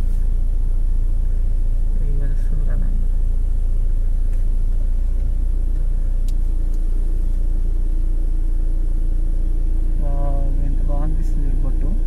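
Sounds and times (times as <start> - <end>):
car engine rumble from inside: 0.0 - 12.0
faint sharp click: 6.2 - 6.9.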